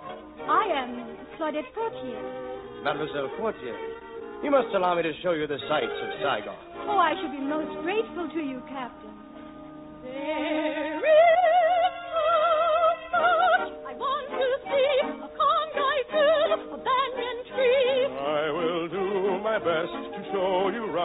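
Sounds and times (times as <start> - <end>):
orchestral music: 0.0 - 21.0
operatic voice singing: 15.0 - 21.0.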